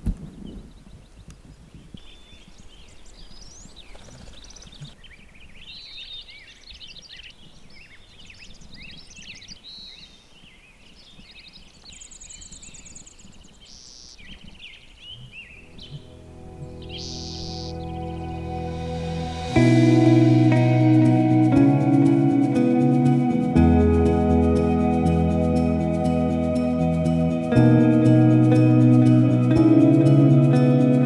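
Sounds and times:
songbirds singing: 0.0s - 30.8s
high rapid bird trill: 15.6s - 20.4s.

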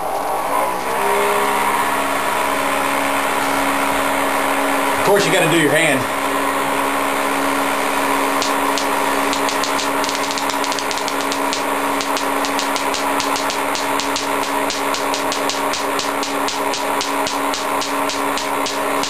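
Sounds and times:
motor and belt hum: 0.0s - 19.0s
static sparks snapping: 8.4s - 19.0s.

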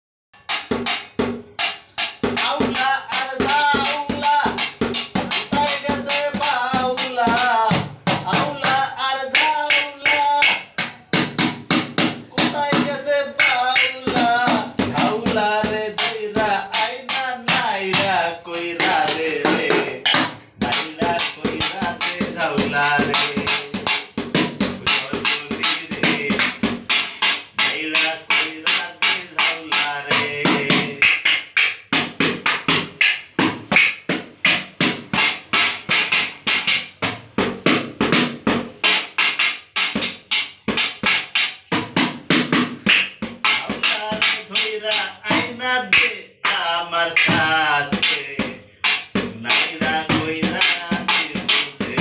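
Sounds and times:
sticks drumming on buckets: 0.4s - 52.0s
man singing: 2.4s - 10.8s, 12.2s - 31.2s, 43.4s - 52.0s.

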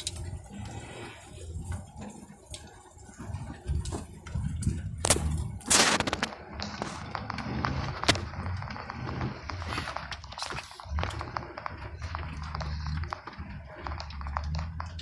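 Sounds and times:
cab rattling: 0.0s - 15.0s
truck engine droning: 0.0s - 15.0s
vegetation clicks and snaps: 4.6s - 15.0s.

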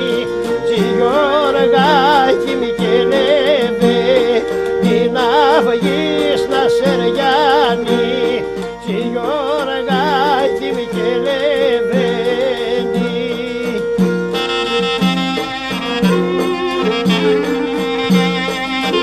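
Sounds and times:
clarinet melody with vibrato: 0.0s - 19.0s
violin: 0.0s - 19.0s.

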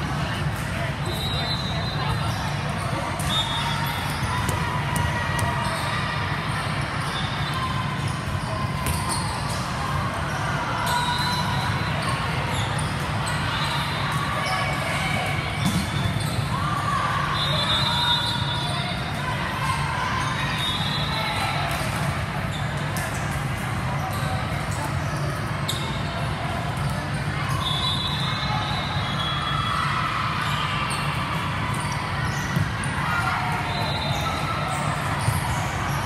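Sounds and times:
referee whistles: 1.0s - 2.3s, 3.2s - 4.2s, 17.3s - 18.9s, 27.5s - 29.8s, 33.6s - 34.8s.

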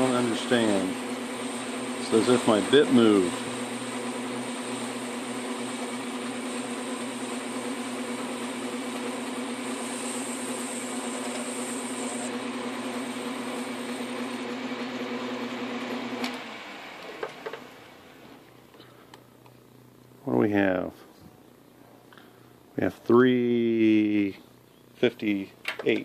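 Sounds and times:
hiss of metal cutting: 0.0s - 14.4s
lathe motor hum: 0.0s - 18.6s.

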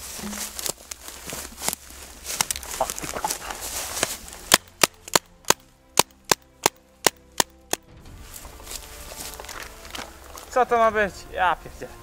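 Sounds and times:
paintball marker shots: 4.5s - 7.8s.

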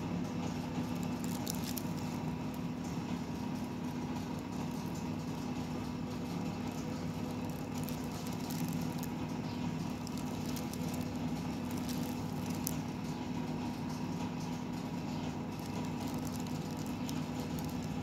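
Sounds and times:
low mechanical hum: 0.0s - 18.0s
faint light clicks and crackles: 0.9s - 2.7s, 4.2s - 12.9s, 15.2s - 18.0s.

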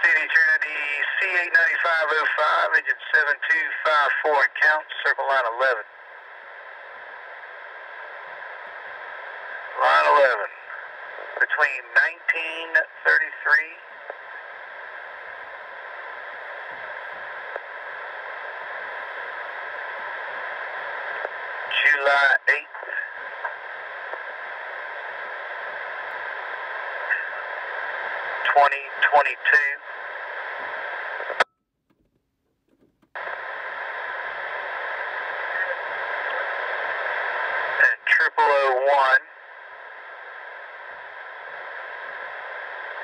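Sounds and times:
person speaking over radio: 0.0s - 5.9s, 9.7s - 13.9s, 21.7s - 23.2s, 27.1s - 27.5s, 28.3s - 29.9s, 37.7s - 39.3s
radio static hiss: 0.0s - 31.4s, 33.1s - 43.0s.

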